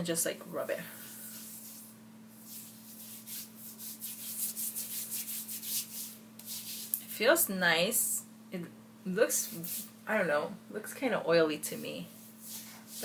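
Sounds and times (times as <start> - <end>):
hands rubbing over skin: 1.2 - 7.1, 11.8 - 13.0.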